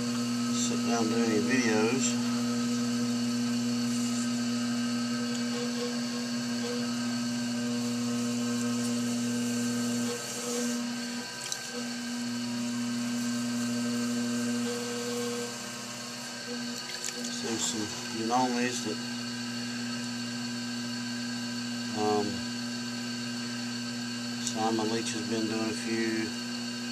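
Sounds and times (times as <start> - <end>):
potter's wheel motor humming: 0.0 - 26.9.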